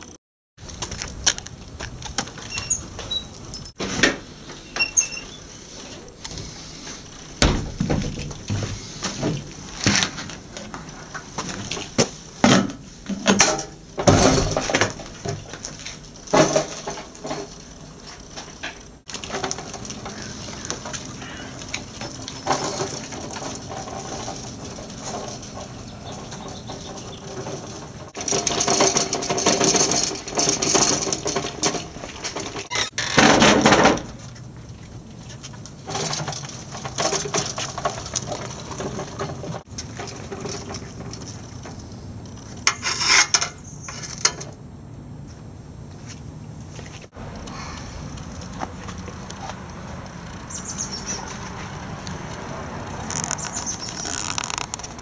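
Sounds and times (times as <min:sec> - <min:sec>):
scooter knocks and clatter: 0:00.6 - 0:05.0, 0:07.3 - 0:44.6
scooter running with faint hum: 0:13.8 - 0:33.1, 0:33.8 - 0:55.0.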